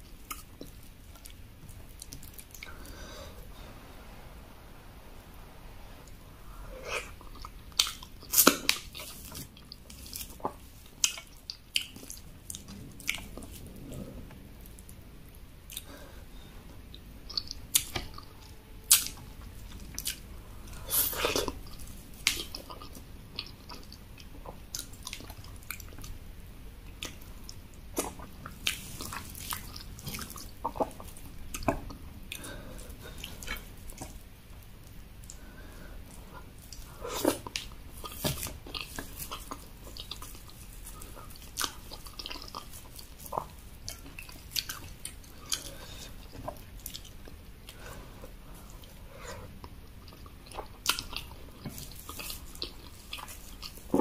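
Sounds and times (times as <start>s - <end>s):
wet chewing and lip smacks: 6.9s - 14.0s, 17.3s - 26.2s, 36.1s - 47.9s, 48.7s - 54.0s.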